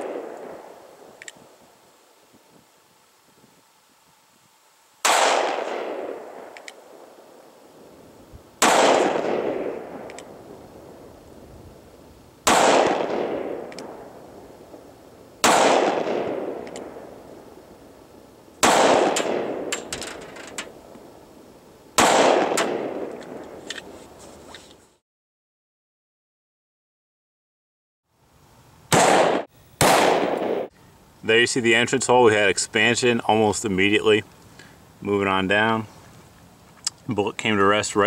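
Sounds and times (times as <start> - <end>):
pistol gunshots with echo: 0.0 - 0.8, 5.0 - 7.1, 8.6 - 10.4, 12.4 - 14.2, 15.4 - 17.2, 18.6 - 19.9, 22.0 - 23.5, 28.9 - 30.7.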